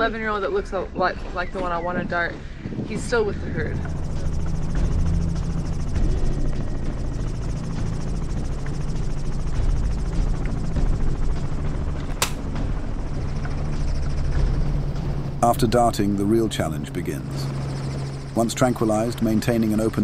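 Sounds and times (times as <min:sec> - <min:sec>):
helicopter rotor and engine: 0:00.0 - 0:20.0
sharp crack: 0:12.1 - 0:12.5.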